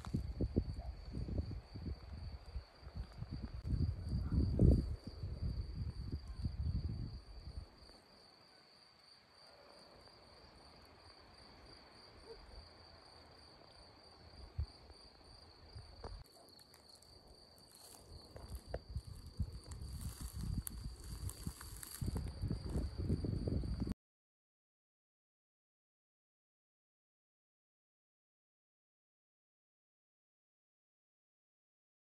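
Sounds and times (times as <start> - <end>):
cricket trilling: 0.0 - 23.9.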